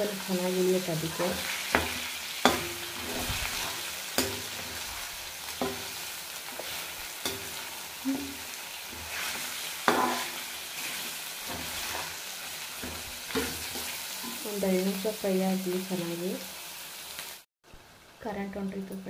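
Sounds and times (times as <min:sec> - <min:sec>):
chicken sizzling in oil: 0:00.0 - 0:18.3
metal spoon scraping pan: 0:05.6 - 0:07.8, 0:08.9 - 0:14.5.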